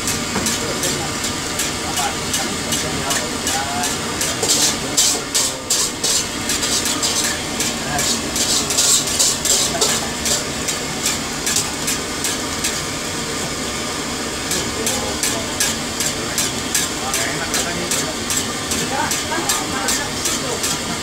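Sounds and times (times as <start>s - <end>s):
food sizzling in oil: 0.0s - 21.0s
metal spatula scraping pan: 3.8s - 12.0s.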